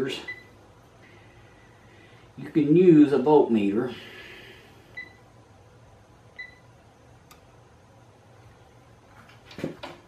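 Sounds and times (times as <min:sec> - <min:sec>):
multimeter high beeps: 0:00.2 - 0:00.6, 0:05.0 - 0:05.3, 0:06.4 - 0:06.7.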